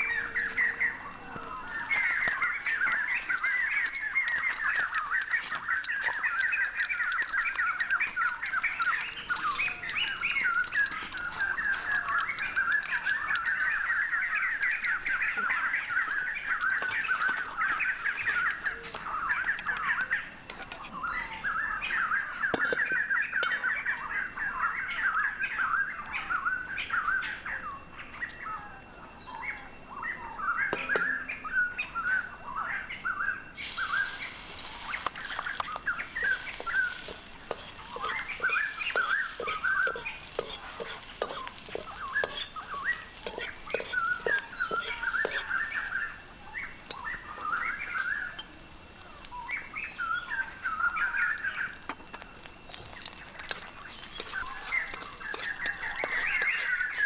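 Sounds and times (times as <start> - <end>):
birds chirping: 0.0 - 57.0
faint sizzle of frying in a wok: 0.0 - 57.0
utensil clicking against a wok: 34.4 - 46.0, 46.8 - 48.5, 51.7 - 57.0.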